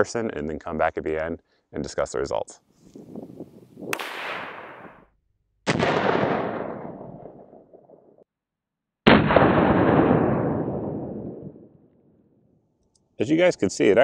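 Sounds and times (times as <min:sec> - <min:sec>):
slowed-down gunshots: 0:03.9 - 0:05.1, 0:05.7 - 0:08.2, 0:09.1 - 0:11.9.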